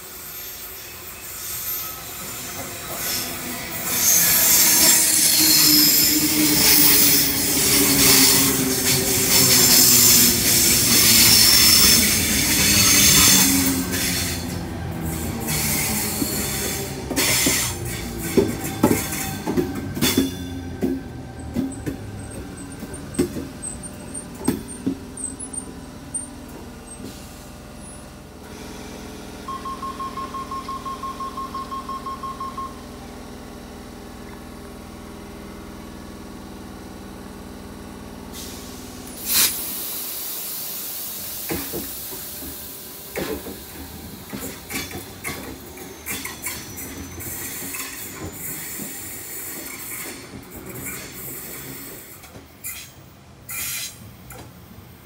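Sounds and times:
train wheels rumbling and clattering: 0.0s - 29.1s, 40.4s - 55.0s
electric train humming: 1.9s - 28.0s, 28.8s - 34.2s
door warning beeps: 29.5s - 33.0s.

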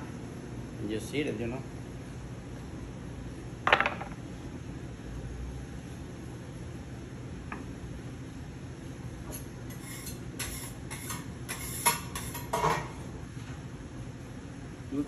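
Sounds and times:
exhaust hood fan hum: 0.0s - 15.0s
metal utensils clattering on cookware: 10.4s - 12.9s.

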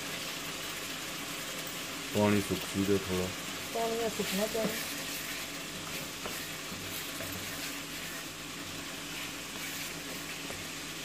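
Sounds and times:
curry sizzling in a wok: 0.0s - 11.0s
wooden spoon stirring: 4.1s - 11.0s.

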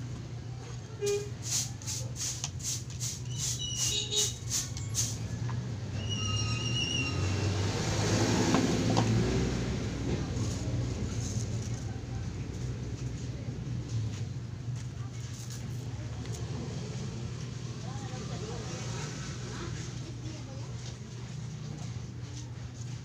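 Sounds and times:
quick scratchy strokes: 1.1s - 5.3s
vehicle passing by: 4.6s - 14.2s, 15.9s - 20.6s.

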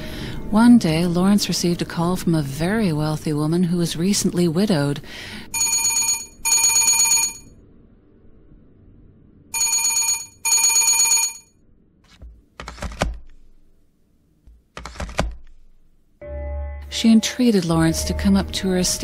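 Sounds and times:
desk telephone ringing: 5.6s - 7.5s, 9.6s - 11.5s.

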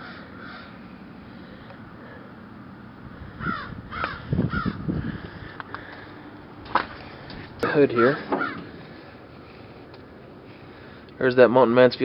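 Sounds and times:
crow cawing: 0.0s - 0.8s, 3.2s - 6.1s, 7.7s - 9.1s
faint outdoor background noise: 0.0s - 12.0s.

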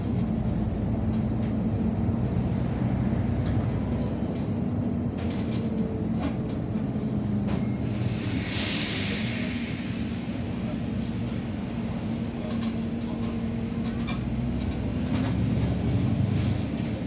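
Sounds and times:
bus engine drone: 0.0s - 17.0s
road noise: 0.0s - 17.0s.

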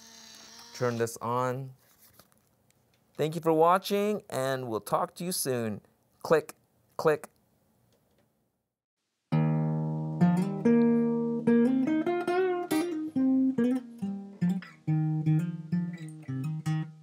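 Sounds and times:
plucked guitar notes: 9.3s - 17.0s.

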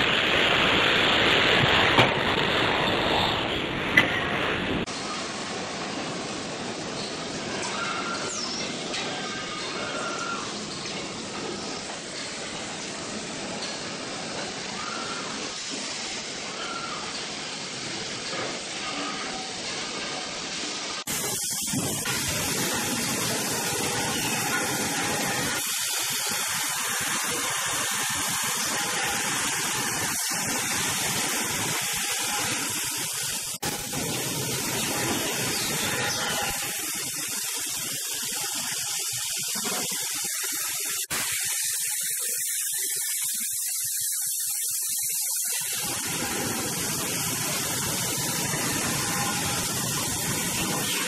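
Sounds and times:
factory machinery running: 17.2s - 51.0s.

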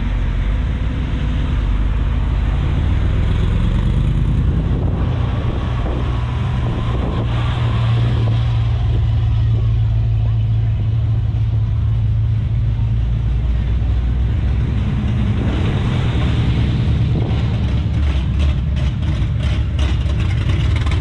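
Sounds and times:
car engine rumbling: 0.0s - 21.0s
low hum: 0.0s - 21.0s.

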